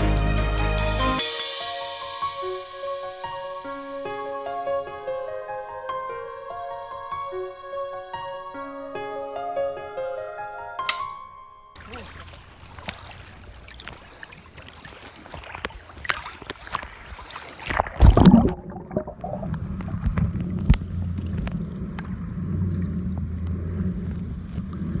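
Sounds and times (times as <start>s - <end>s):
loud splash: 11.8s - 20.1s
water sloshing and splashing: 11.8s - 25.0s
underwater clicks: 12.7s - 25.0s
muffled underwater hum: 18.0s - 25.0s.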